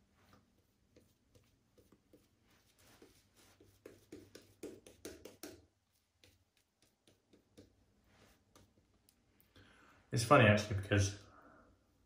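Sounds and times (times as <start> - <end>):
shaving brush swishing lather: 0.0 - 8.7.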